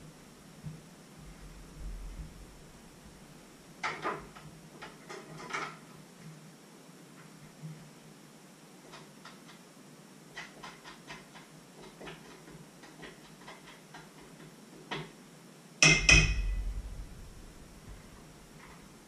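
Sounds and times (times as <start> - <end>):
utensil tapping metal bowl: 15.8 - 16.7
loud knock and clatter: 15.8 - 18.8.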